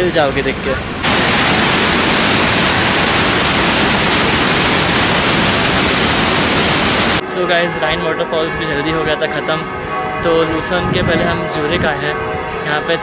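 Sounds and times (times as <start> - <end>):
water rushing over rocks: 0.5 - 7.2.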